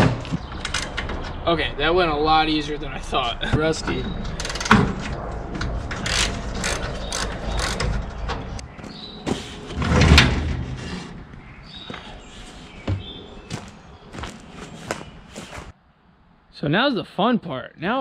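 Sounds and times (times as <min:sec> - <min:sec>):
heavy bump: 0:11.8 - 0:15.7.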